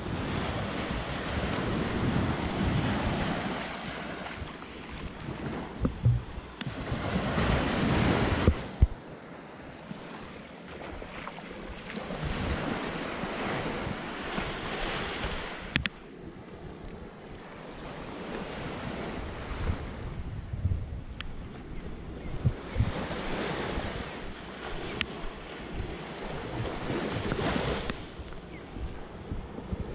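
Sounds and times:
wind buffeting microphone: 0:00.0 - 0:09.1, 0:17.8 - 0:29.9
ocean surf washing ashore: 0:00.0 - 0:16.7, 0:22.6 - 0:29.9.

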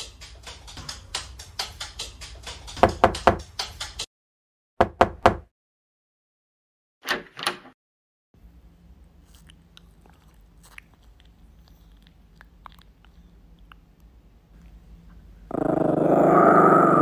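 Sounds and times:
light music with steady beat: 0:00.0 - 0:04.1
knocking on a door: 0:02.8 - 0:03.5, 0:04.8 - 0:05.5.

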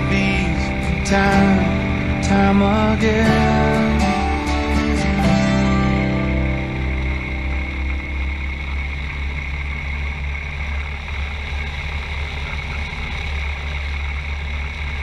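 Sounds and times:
motorcycle engine rumble: 0:00.0 - 0:15.0
wind and road noise: 0:05.7 - 0:15.0.

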